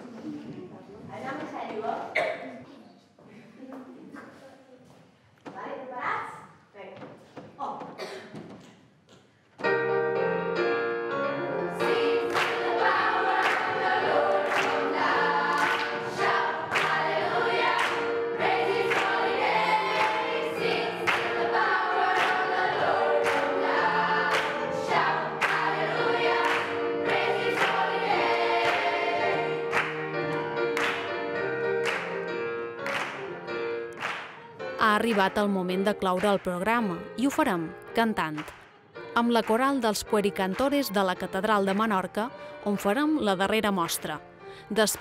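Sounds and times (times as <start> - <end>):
digital piano accompaniment: 9.6 - 45.0
children's choir singing: 11.8 - 31.1.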